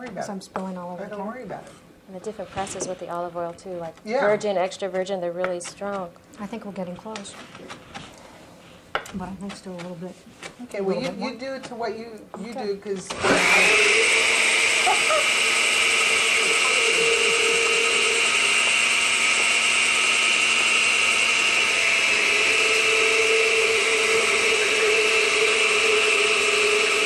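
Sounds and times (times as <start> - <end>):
blender running: 13.0 - 27.0.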